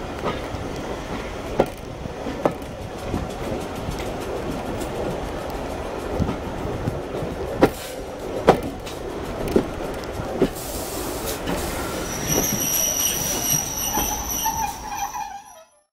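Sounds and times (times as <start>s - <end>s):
train wheels clicking over rail joints: 0.0s - 15.6s
train rumble: 0.0s - 15.8s
high-pitched wheel squeal: 11.6s - 15.9s.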